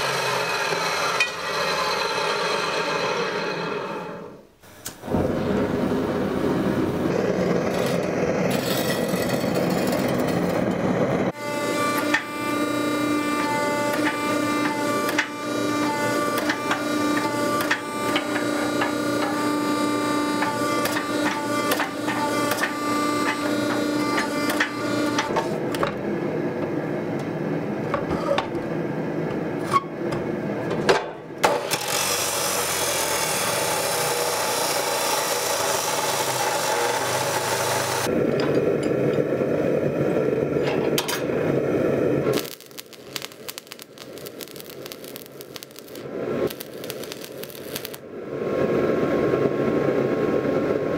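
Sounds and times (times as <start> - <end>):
abrasive wheel grinding steel: 0.0 - 4.5, 7.0 - 25.6, 31.6 - 38.1
hydraulic press whining: 0.0 - 5.6, 11.3 - 26.0.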